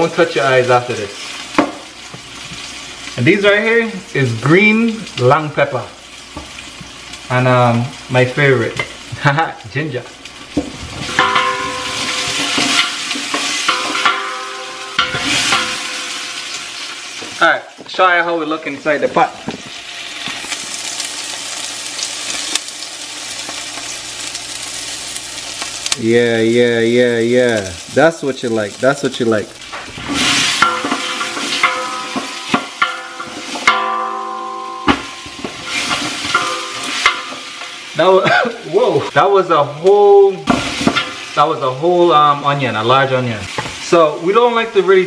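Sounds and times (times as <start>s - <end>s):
vegetables sizzling in oil: 0.0s - 45.0s
knocks on pot ringing: 11.1s - 13.0s, 13.7s - 16.2s, 30.6s - 35.7s, 36.3s - 37.5s.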